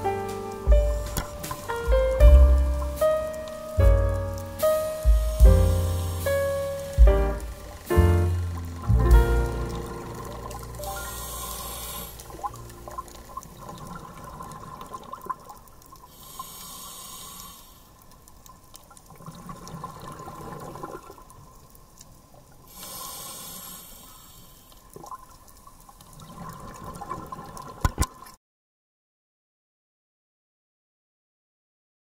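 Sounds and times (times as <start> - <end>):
hissing regulator inhale: 5.9 - 6.6, 10.8 - 12.5, 16.1 - 18.0, 22.7 - 24.8
bubbling exhale underwater: 7.7 - 15.4, 19.1 - 21.2.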